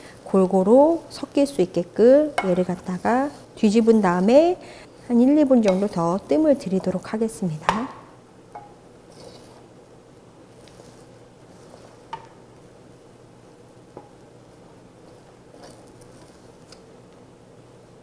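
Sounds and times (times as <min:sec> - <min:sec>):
faint steady hiss: 0:00.0 - 0:18.0
wooden spatula scraping a pot: 0:00.1 - 0:07.7, 0:09.0 - 0:09.7, 0:10.5 - 0:12.7, 0:14.5 - 0:16.7.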